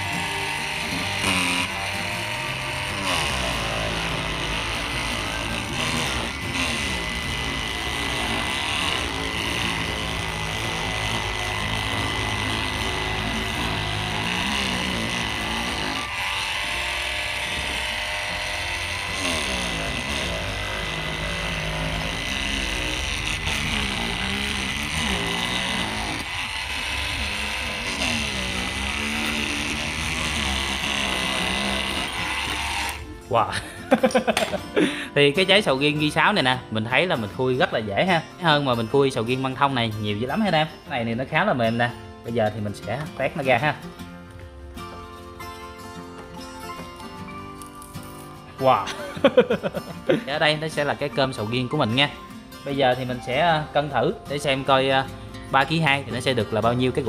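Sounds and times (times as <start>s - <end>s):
oscillating multi-tool whining: 0.0s - 33.3s
background music: 0.0s - 57.0s.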